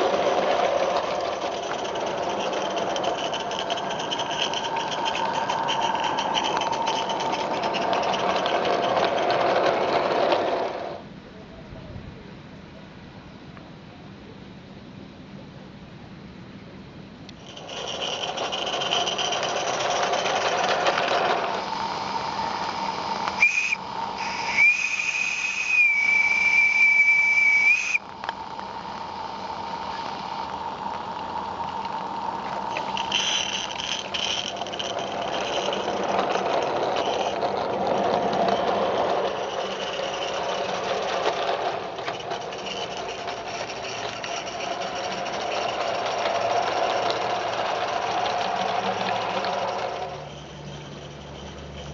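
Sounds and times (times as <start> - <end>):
steam hissing: 19.9 - 37.4
steam locomotive whistle: 23.4 - 28.0.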